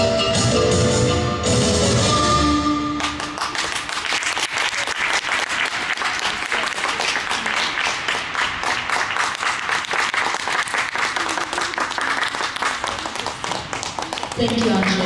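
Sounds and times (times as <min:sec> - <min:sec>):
audience applauding: 0:03.0 - 0:15.0.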